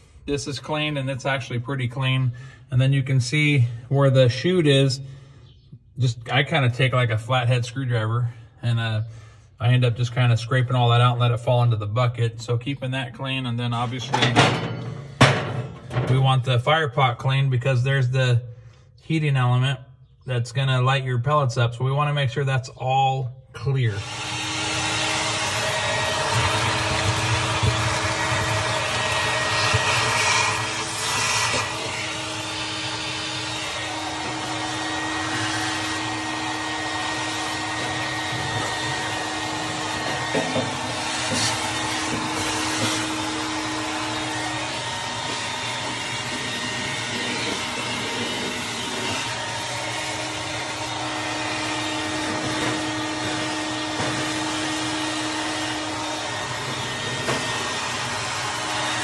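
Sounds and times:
vacuum cleaner running: 0:23.6 - 0:59.0.

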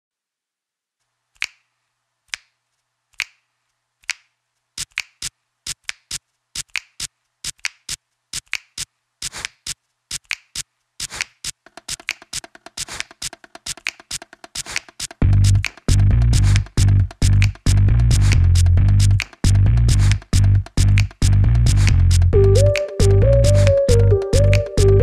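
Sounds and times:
rhythmic sharp snaps: 0:01.4 - 0:25.0
low bass line: 0:15.2 - 0:25.0.

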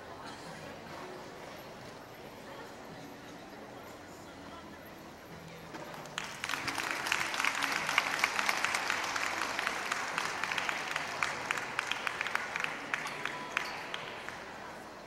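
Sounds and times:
audience applauding: 0:06.2 - 0:14.2.

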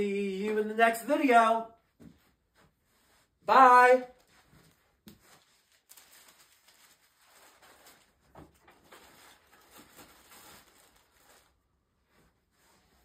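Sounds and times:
soft rustles: 0:01.8 - 0:03.4, 0:04.2 - 0:13.0.

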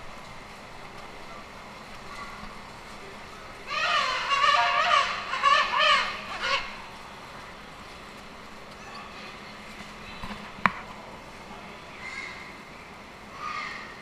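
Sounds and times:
low background noise: 0:00.0 - 0:14.0
penguin honking calls: 0:03.7 - 0:06.8.

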